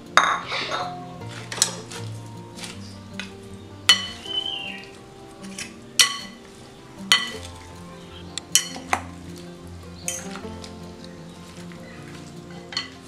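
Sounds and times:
soft background music: 0.0s - 13.0s
utensil clinking glass bowl: 0.2s - 2.8s, 3.9s - 4.3s, 5.4s - 6.4s, 7.1s - 7.6s, 8.6s - 9.0s, 12.1s - 13.0s.

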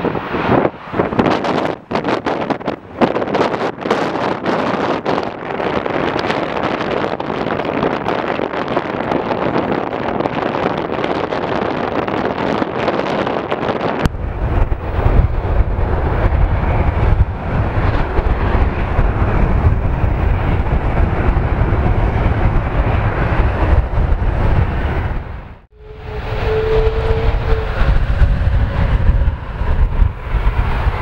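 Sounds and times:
jet engines rushing: 0.0s - 7.8s, 13.9s - 31.0s
wind buffeting microphone: 0.0s - 31.0s
low rumble: 14.0s - 31.0s.

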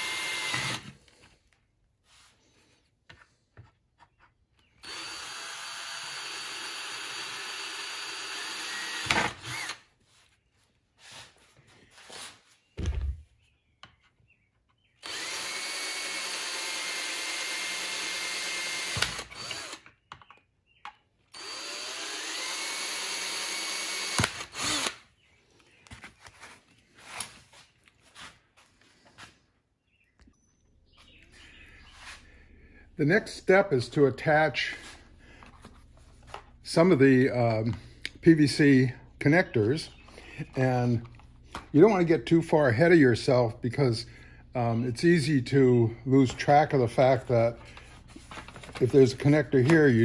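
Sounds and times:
cordless drill whining through plastic: 0.0s - 1.3s, 4.6s - 10.0s, 15.0s - 20.1s, 21.3s - 25.2s.

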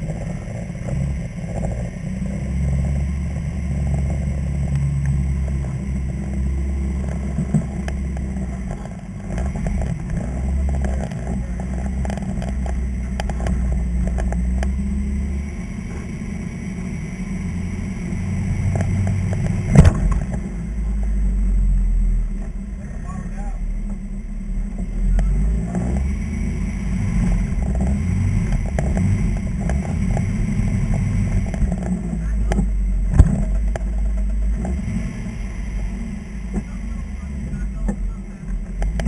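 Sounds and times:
rocks and chassis clattering: 0.0s - 21.0s, 23.8s - 39.0s
engine running under load: 0.0s - 39.0s
sharp bang: 19.7s - 20.3s.

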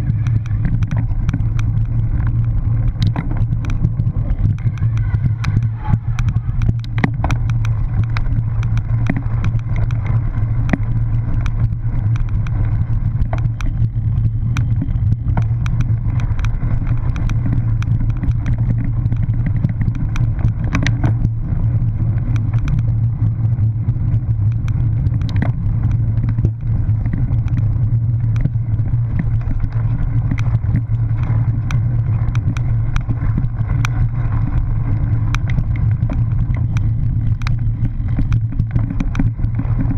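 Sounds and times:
bike rattling over bumps: 0.0s - 39.9s
wind rumble on camera: 0.0s - 39.9s.

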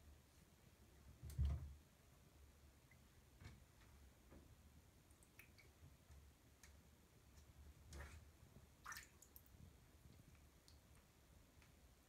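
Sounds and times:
bathwater sloshing in a bathtub: 7.4s - 10.9s.

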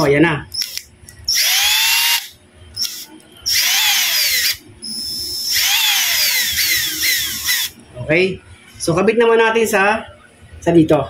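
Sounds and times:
electric motor whining: 1.3s - 7.8s.

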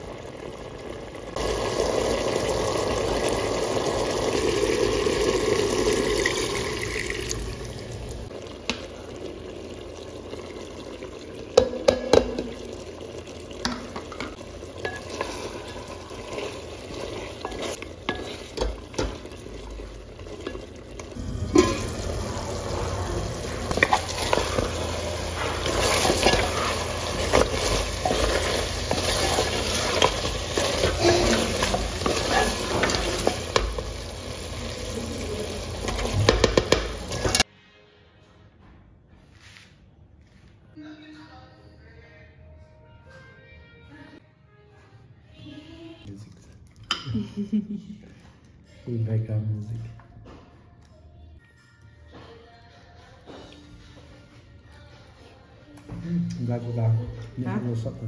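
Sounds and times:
broth being poured: 0.0s - 37.5s
cooking liquid sizzling: 0.0s - 37.5s
spatula scraping metal pot: 14.8s - 19.3s, 22.8s - 33.7s.

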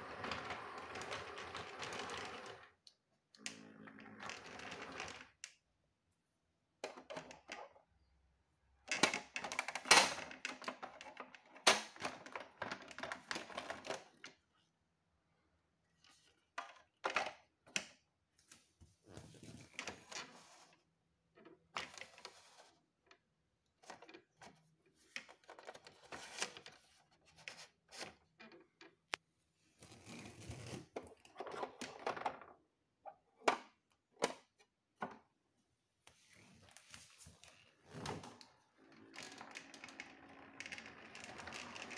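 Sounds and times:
plastic toy train clicking: 39.1s - 41.9s.

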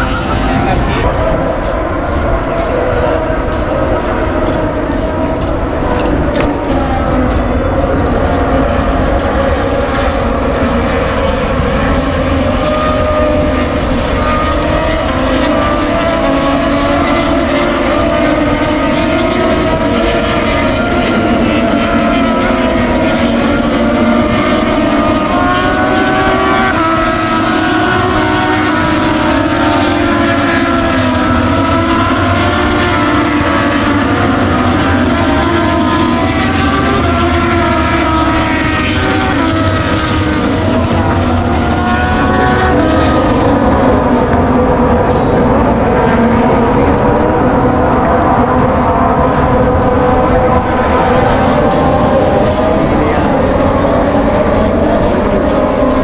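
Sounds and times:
motorcycle engines revving: 0.0s - 56.0s.

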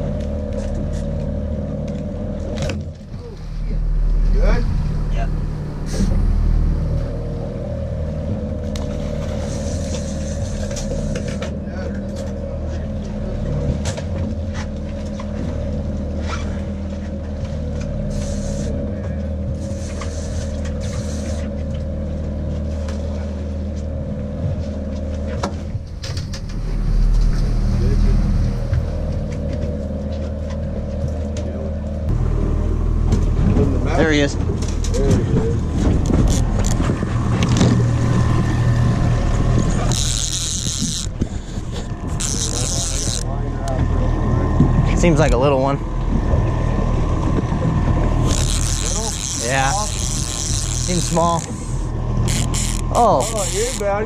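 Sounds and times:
outboard motor running: 0.0s - 54.0s
fishing rod handling clicks: 39.8s - 43.3s, 48.2s - 53.9s.

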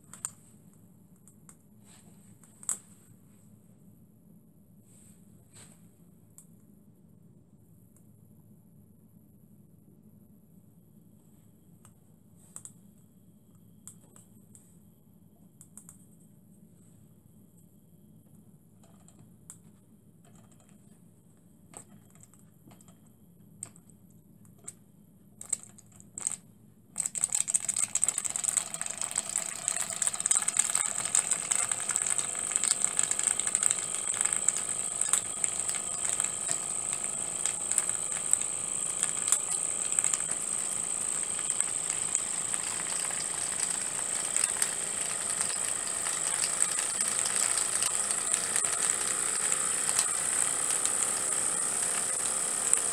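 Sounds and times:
clicks: 27.0s - 52.9s.

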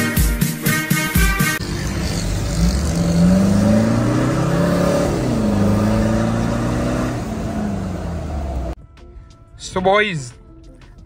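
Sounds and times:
car engine accelerating: 1.6s - 8.8s.

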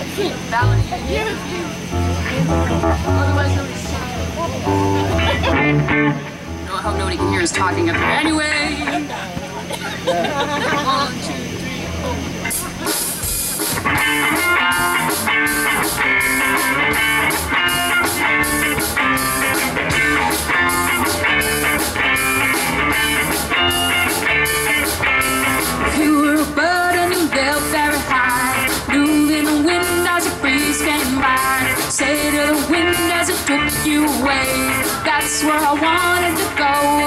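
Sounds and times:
electric bass: 0.0s - 37.0s
electric guitar riffs: 0.0s - 37.0s
drum beat: 12.4s - 25.8s.

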